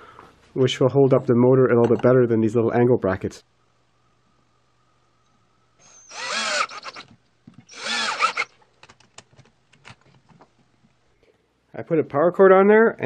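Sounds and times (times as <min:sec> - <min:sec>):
power drill driving into wood: 0:05.8 - 0:07.1, 0:07.7 - 0:08.5.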